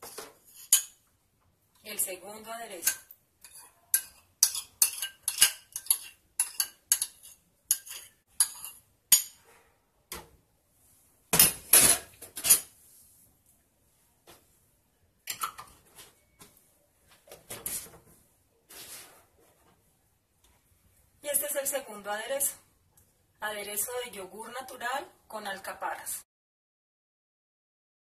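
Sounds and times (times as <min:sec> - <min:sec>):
spoon scraping ceramic bowl: 0:00.0 - 0:01.0, 0:02.8 - 0:09.4, 0:11.8 - 0:12.8
dishes clattering in metal sink: 0:11.4 - 0:12.7.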